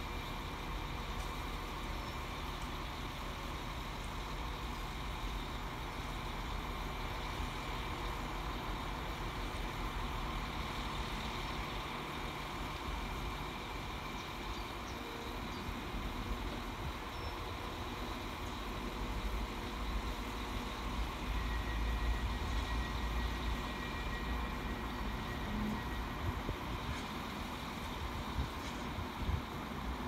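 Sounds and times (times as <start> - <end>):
diesel train engine rumbling: 0.0 - 30.0.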